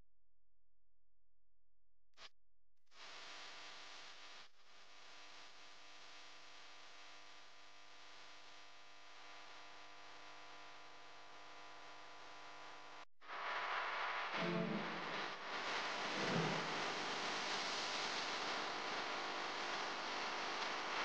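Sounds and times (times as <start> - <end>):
faint steady hiss: 13.3 - 21.0.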